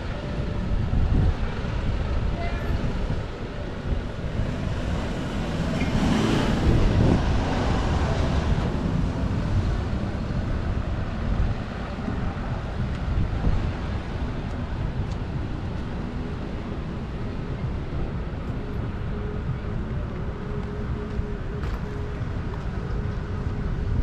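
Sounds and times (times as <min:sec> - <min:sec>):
wind buffeting microphone: 0:00.0 - 0:20.3
street ambience: 0:00.0 - 0:24.0.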